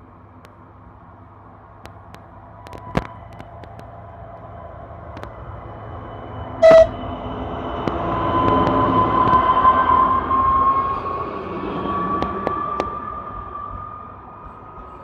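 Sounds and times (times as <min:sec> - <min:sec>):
diesel railcar engine whine: 0:00.0 - 0:15.0
train horn blast: 0:06.6 - 0:07.0.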